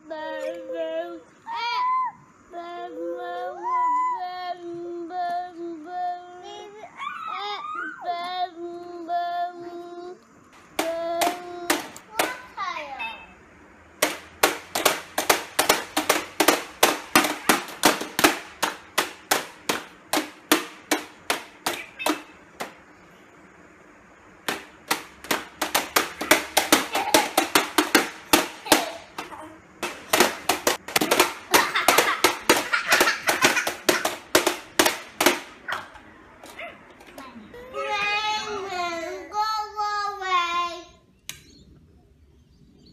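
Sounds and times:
plastic toy hammers tapping: 0:10.7 - 0:12.4, 0:14.0 - 0:22.8, 0:24.4 - 0:37.2.

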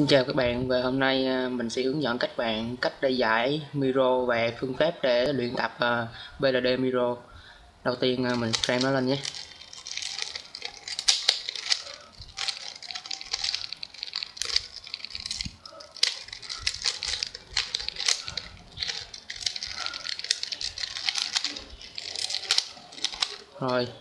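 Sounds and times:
puzzle cube clicking and rattling: 0:08.2 - 0:23.8.

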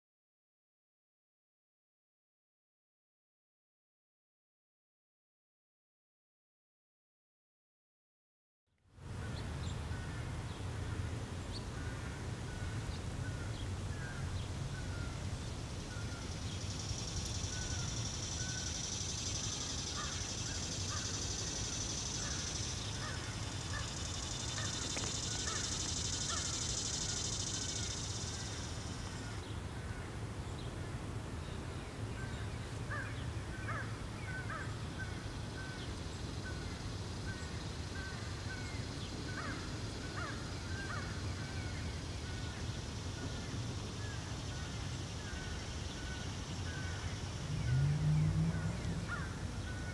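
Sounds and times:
bird calls: 0:11.5 - 0:30.1, 0:32.2 - 0:49.9
crows cawing: 0:19.9 - 0:21.2, 0:22.2 - 0:26.6, 0:32.9 - 0:34.7, 0:39.4 - 0:39.6, 0:40.2 - 0:41.2, 0:49.0 - 0:49.9
steady low rumble: 0:47.0 - 0:49.9.

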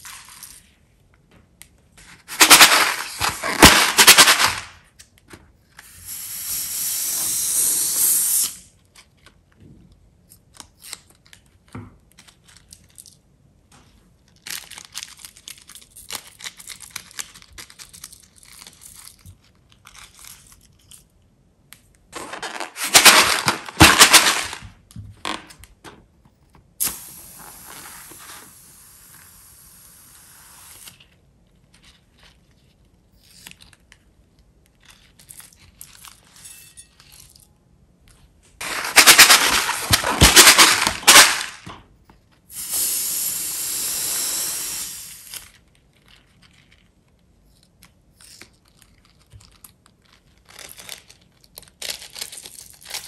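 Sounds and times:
balloon hissing spurts: 0:05.8 - 0:08.7, 0:26.8 - 0:31.0, 0:42.5 - 0:45.5
small crackles: 0:45.4 - 0:53.0.

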